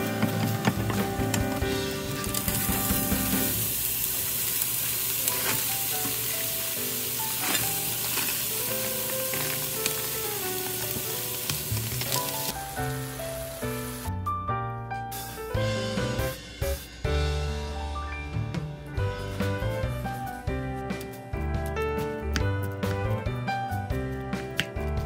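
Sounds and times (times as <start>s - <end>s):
rice sizzling in a frying pan: 0.0s - 14.1s
soft background music: 5.1s - 25.0s.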